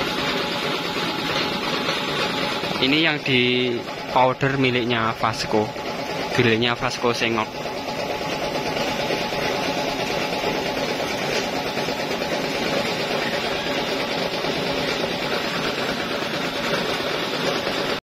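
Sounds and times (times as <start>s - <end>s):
workshop machinery humming: 0.0s - 18.0s.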